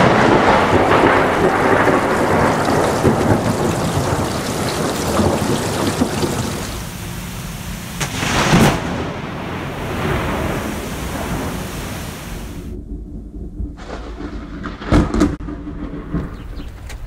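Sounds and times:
heavy rain: 0:00.0 - 0:12.8
thunder rumbling: 0:00.0 - 0:16.9.

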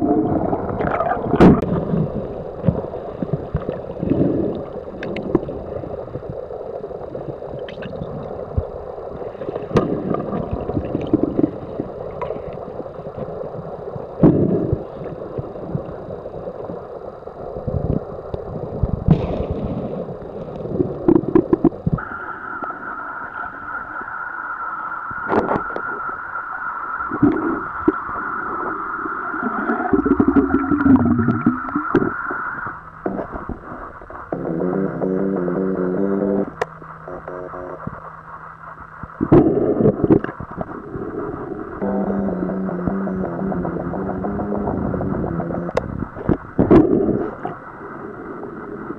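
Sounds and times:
underwater knocks and thumps: 0:00.0 - 0:03.8, 0:09.6 - 0:12.5, 0:20.8 - 0:22.0, 0:29.7 - 0:32.4
low gurgling: 0:00.0 - 0:48.9
muffled underwater water noise: 0:00.0 - 0:48.9
steady high whine: 0:00.0 - 0:48.9.

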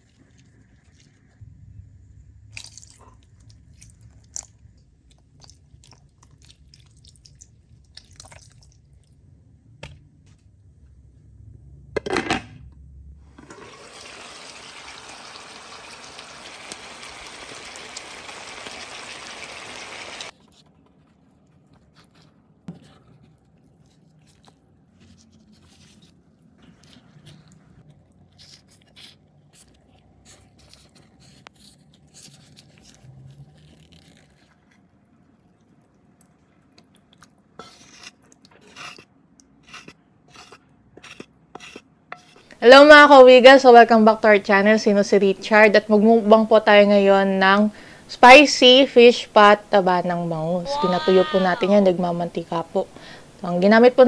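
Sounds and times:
stew bubbling in a pan: 0:13.5 - 0:20.3.

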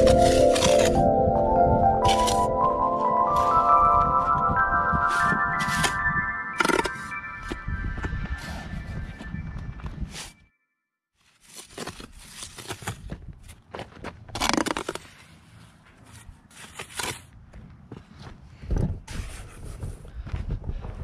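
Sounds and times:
trowel scraping wet mortar: 0:00.0 - 0:01.0
footsteps on rubble: 0:11.9 - 0:15.2.

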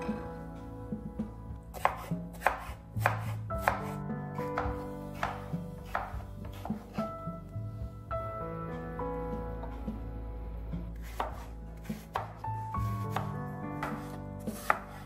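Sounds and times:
knife chopping on wooden board: 0:01.7 - 0:07.1, 0:11.0 - 0:12.4, 0:13.1 - 0:15.0.

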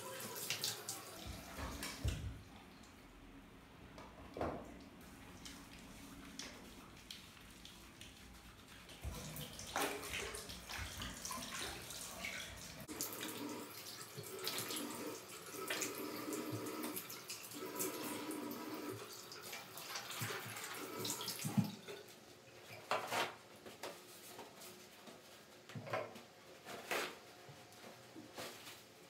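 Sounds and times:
faucet running: 0:00.0 - 0:02.2, 0:05.0 - 0:22.0.

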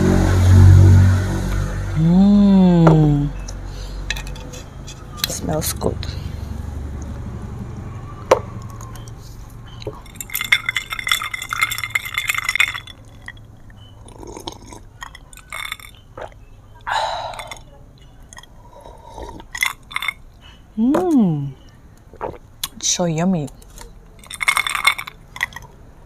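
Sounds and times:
glass clink: 0:09.7 - 0:16.4, 0:19.5 - 0:20.2, 0:24.2 - 0:25.6
person sipping: 0:14.0 - 0:17.7, 0:18.6 - 0:20.1, 0:22.1 - 0:22.4.

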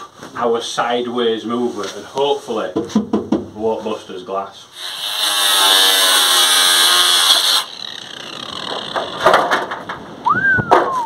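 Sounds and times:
knocks and scraping of metal sheet: 0:02.7 - 0:03.5, 0:08.3 - 0:11.0
angle grinder cutting steel: 0:04.8 - 0:09.4.

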